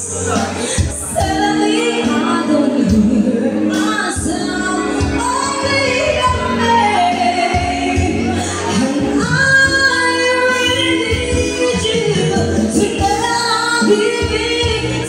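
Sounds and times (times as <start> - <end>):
backing music with bass line: 0.0 - 15.0
woman singing into a microphone: 0.0 - 15.0.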